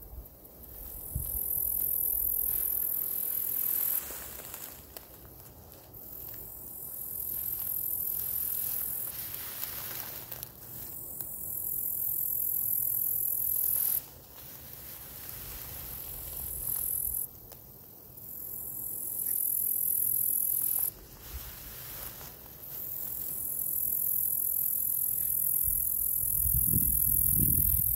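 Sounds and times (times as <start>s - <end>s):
katydid high-pitched buzz: 11.5s - 14.1s.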